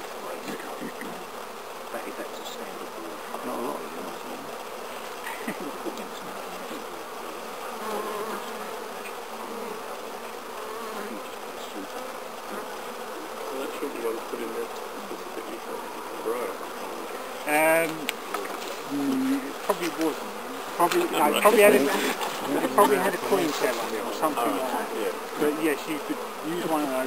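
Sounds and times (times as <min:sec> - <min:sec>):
bees buzzing: 0:00.0 - 0:27.0
hive tool clicking on wooden frames: 0:17.8 - 0:18.7, 0:19.6 - 0:20.2.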